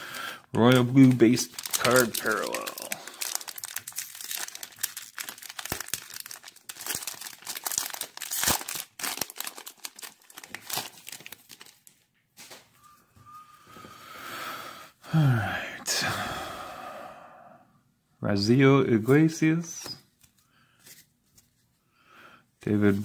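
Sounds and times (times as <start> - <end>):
foil wrapper tearing and crinkling: 0.6 - 11.9.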